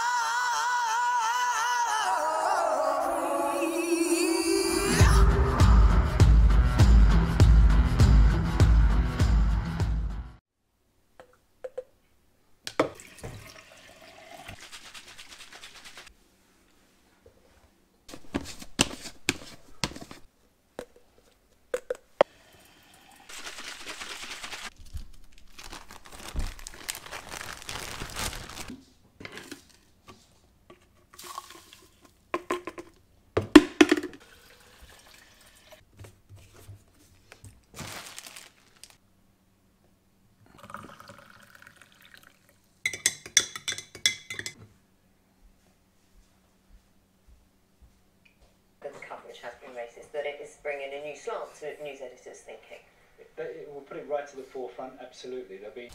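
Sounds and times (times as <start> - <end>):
running or splashing water: 12.9 - 16.1, 34.2 - 35.8.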